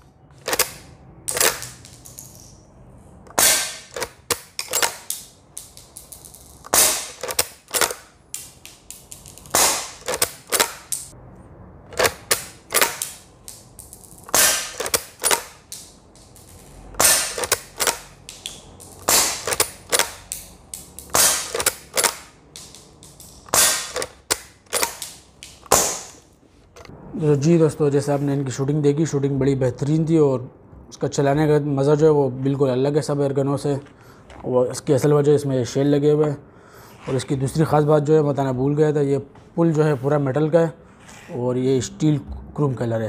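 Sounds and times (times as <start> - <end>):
air rifle shots: 3.3 - 5.0, 6.7 - 8.1, 9.5 - 11.1, 14.3 - 15.6, 17.0 - 18.2, 19.0 - 20.2, 21.0 - 22.3, 23.5 - 26.2
rifle lever clacking: 3.3 - 5.1, 6.7 - 8.0, 9.5 - 10.9, 14.3 - 15.5, 17.0 - 18.1, 19.1 - 20.2, 21.1 - 22.3, 23.5 - 25.9.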